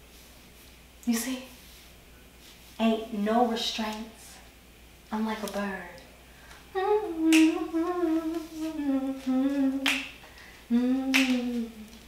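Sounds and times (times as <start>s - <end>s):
woman humming: 6.8s - 9.9s, 10.7s - 12.0s
finger snaps: 7.3s - 7.6s, 9.8s - 10.5s, 11.1s - 12.0s.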